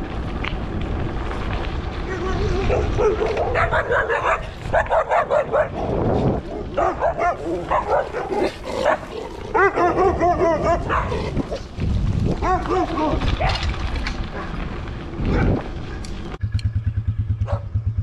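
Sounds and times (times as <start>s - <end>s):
dogs barking and yipping: 2.5s - 11.7s, 12.3s - 16.2s, 17.4s - 17.7s.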